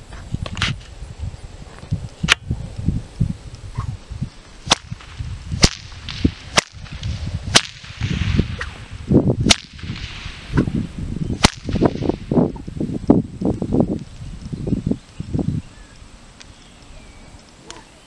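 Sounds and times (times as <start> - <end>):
whip cracking: 4.6 - 10.8, 11.4 - 12.3.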